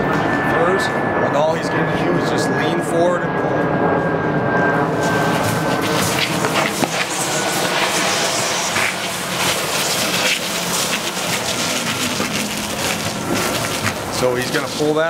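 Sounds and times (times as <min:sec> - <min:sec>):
truck tire scraping across concrete: 0:05.0 - 0:15.0.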